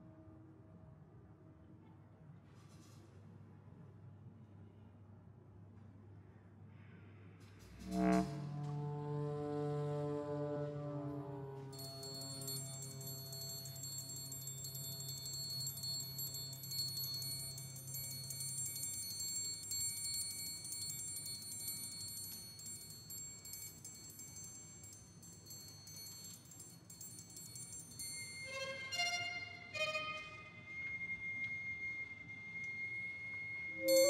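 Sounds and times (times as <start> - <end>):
struck metallic notes: 7.7 - 9.2, 33.8 - 34.0
chamber music ensemble: 33.8 - 34.0.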